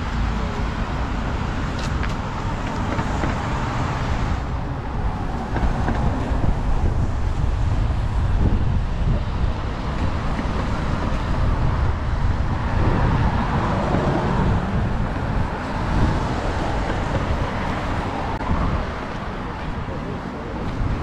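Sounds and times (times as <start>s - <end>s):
cars driving past: 0.0s - 21.0s
city street traffic noise: 0.0s - 21.0s.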